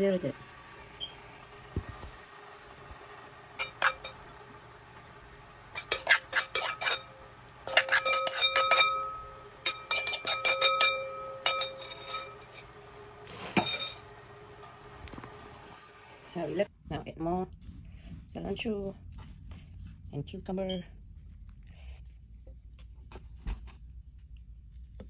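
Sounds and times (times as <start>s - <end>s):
metal spoon scraping metal bowl: 3.6s - 4.2s, 5.7s - 12.7s, 13.3s - 14.1s.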